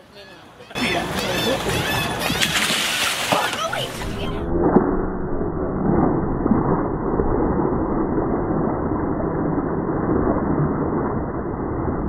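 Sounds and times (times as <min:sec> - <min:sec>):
muffled churning water: 0:00.8 - 0:12.0
fish splashing in water: 0:02.2 - 0:04.5.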